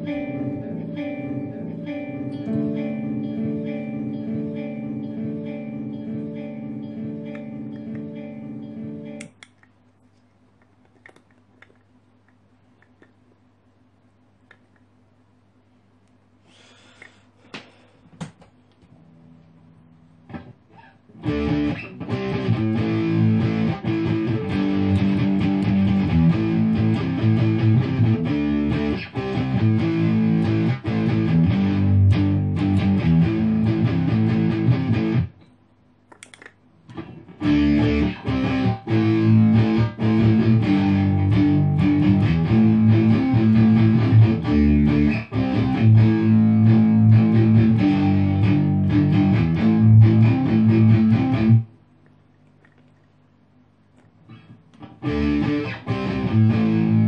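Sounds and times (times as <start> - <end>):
distorted electric guitar with delay: 0.0 - 9.3, 20.3 - 35.4, 36.9 - 51.8, 54.3 - 57.0.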